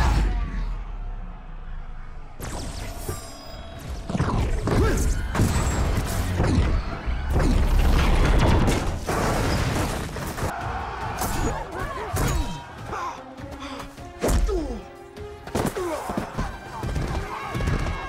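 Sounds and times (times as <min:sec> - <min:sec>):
crowd yelling: 0:00.0 - 0:08.4, 0:10.4 - 0:13.3, 0:16.0 - 0:18.0
battle music: 0:10.4 - 0:18.0.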